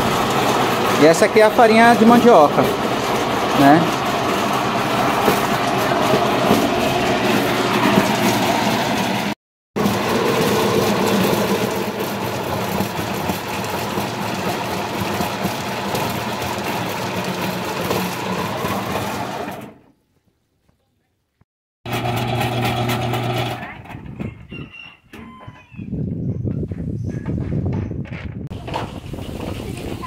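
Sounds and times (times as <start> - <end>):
pulping machine motor hum: 0.0 - 19.8, 21.9 - 23.9.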